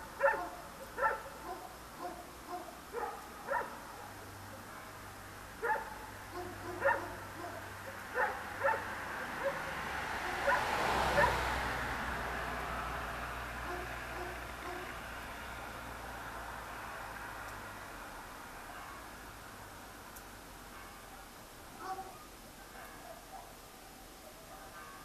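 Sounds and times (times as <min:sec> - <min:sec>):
car passing: 0:00.0 - 0:20.8
dogs barking: 0:00.2 - 0:05.0, 0:05.6 - 0:11.5, 0:13.6 - 0:15.0, 0:21.2 - 0:23.6.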